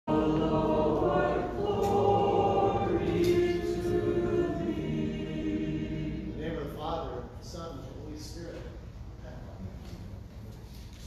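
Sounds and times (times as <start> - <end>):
church choir chanting: 0.1 - 6.8.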